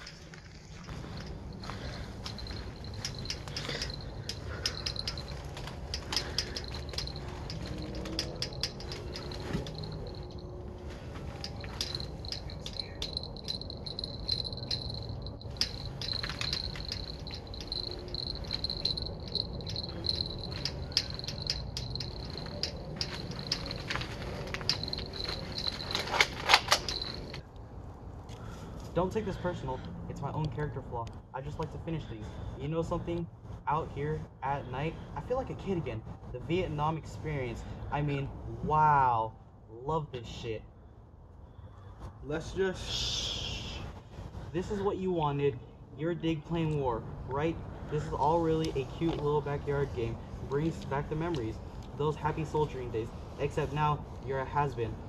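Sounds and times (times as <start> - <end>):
sharp clicks and knocks: 2.3 - 10.4, 11.4 - 27.4
crickets trilling: 11.5 - 25.9.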